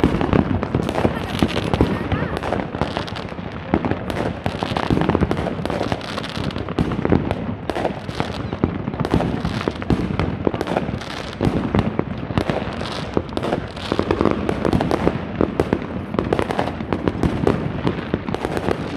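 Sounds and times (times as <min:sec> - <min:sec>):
fireworks and firecrackers banging: 0:00.0 - 0:18.9.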